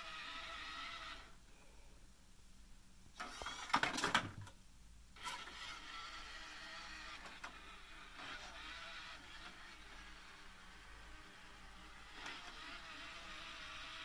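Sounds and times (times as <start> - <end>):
motor whirring with clicks: 5.2 - 14.0
robot drive motors whining: 5.2 - 14.0.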